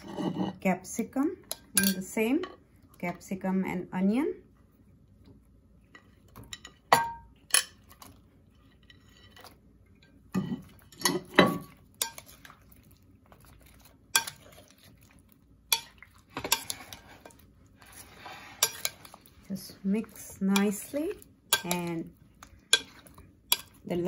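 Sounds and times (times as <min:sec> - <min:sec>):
bowls and spoon clinking: 0:01.5 - 0:02.1, 0:05.9 - 0:24.0.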